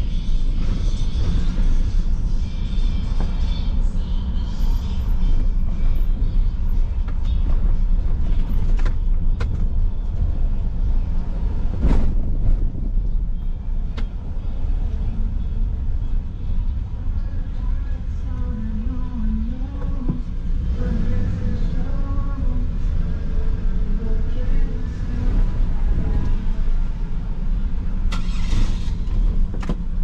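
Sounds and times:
car road and engine rumble: 0.0 - 30.0.

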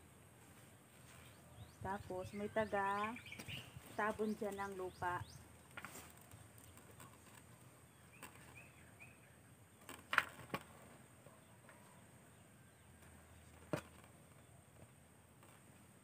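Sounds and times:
faint open-field ambience: 0.0 - 16.0
bird chirps: 1.1 - 5.7, 6.6 - 9.8.

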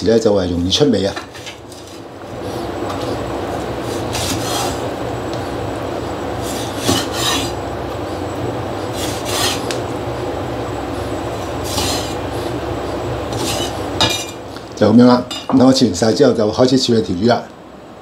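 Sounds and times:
steady low hum: 0.0 - 18.0
cleaver slicing on wooden board: 6.5 - 7.6, 9.0 - 9.7.

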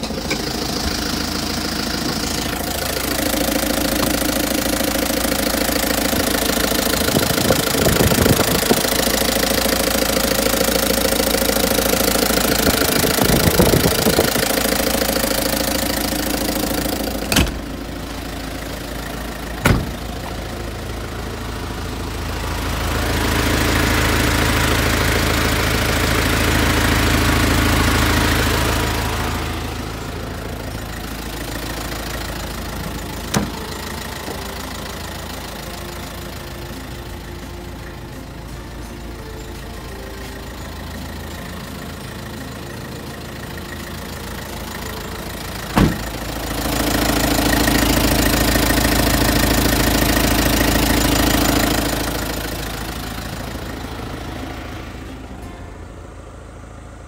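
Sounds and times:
truck engine idling: 0.0 - 57.0.

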